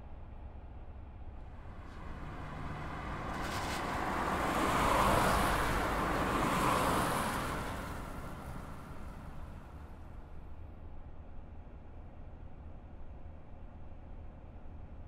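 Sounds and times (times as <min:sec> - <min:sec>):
vehicle engine passing: 0:01.6 - 0:10.0
tyres hissing on wet road: 0:01.7 - 0:09.8.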